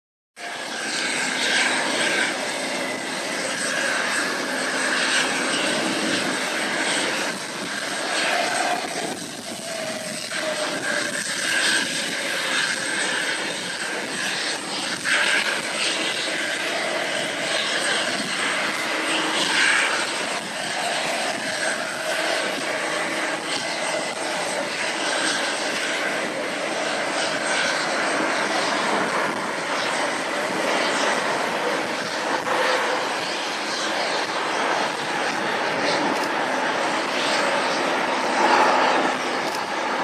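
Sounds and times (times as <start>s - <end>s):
distant jet engines: 0.4s - 40.0s.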